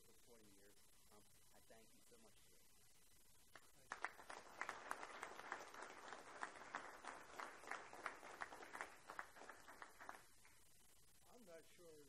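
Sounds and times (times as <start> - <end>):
small audience applauding: 3.5 - 10.6.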